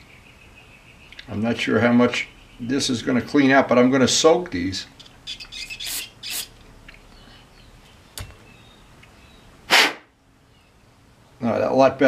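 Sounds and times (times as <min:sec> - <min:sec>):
aerosol spray hissing: 0:05.8 - 0:06.5
brief rush of air: 0:09.7 - 0:10.1.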